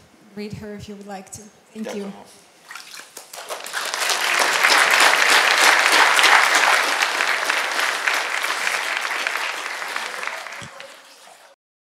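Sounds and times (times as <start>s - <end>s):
congregation applauding: 3.2s - 11.6s.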